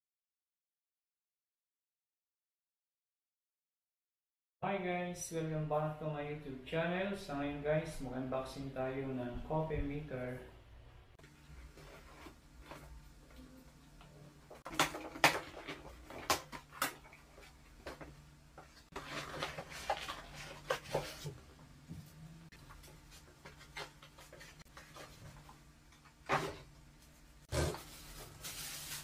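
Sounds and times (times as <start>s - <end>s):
packaging rustling: 18.8s - 21.4s, 27.6s - 29.0s.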